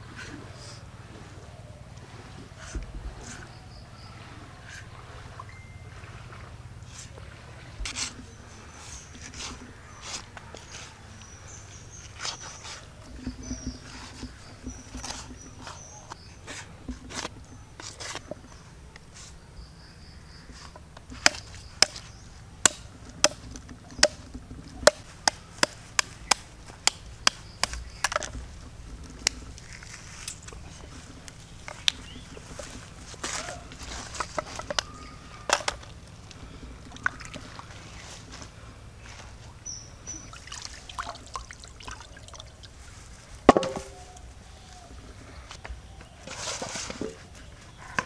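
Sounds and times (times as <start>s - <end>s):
water trickling and splashing: 0.0s - 19.1s, 20.5s - 45.4s
sharp ringing clank: 5.4s - 6.0s.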